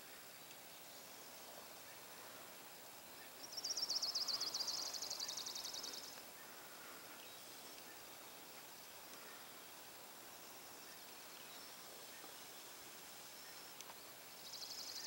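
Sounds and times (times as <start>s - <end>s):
faint outdoor background noise: 0.0s - 15.0s.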